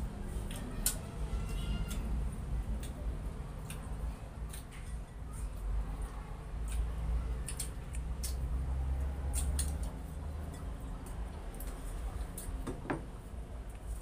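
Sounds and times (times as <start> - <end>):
chewing: 0.3 - 12.6
wet mouth clicks: 6.6 - 8.5.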